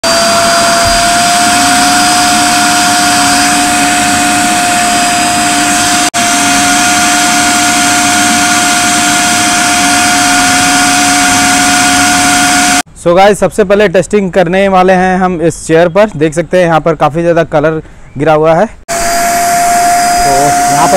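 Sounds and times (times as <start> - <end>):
vacuum cleaner whining: 0.0 - 12.8, 18.9 - 20.9.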